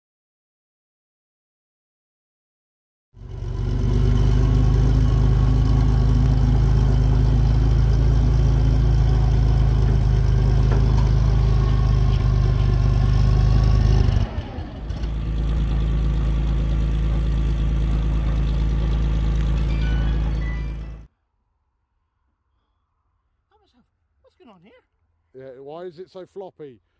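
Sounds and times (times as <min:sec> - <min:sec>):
tracked vehicle engine idling: 0:03.2 - 0:21.1.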